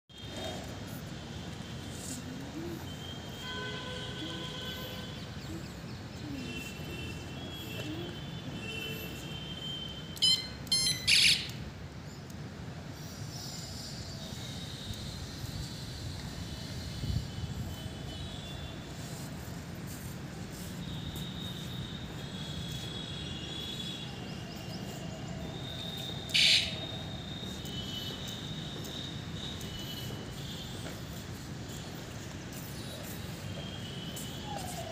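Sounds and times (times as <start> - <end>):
shrill electronic bicycle horn: 8.6 - 11.5, 25.6 - 30.8.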